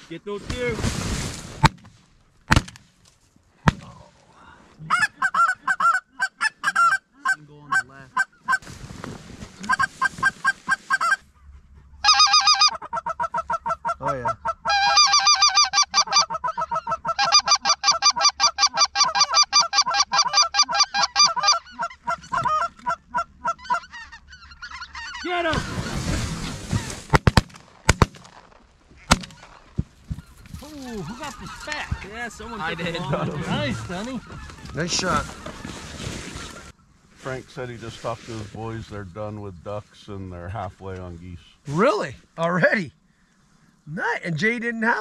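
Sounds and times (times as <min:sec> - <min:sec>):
geese honking: 0:04.9 - 0:08.7, 0:09.6 - 0:11.4, 0:12.0 - 0:27.0, 0:29.0 - 0:36.8
shotgun shots: 0:27.1 - 0:28.4.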